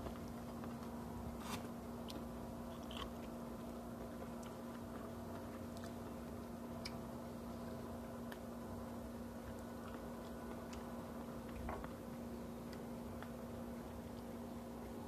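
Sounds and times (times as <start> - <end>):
steady low hum: 0.0 - 15.0
chewing and biting clicks: 2.0 - 7.1, 9.4 - 15.0.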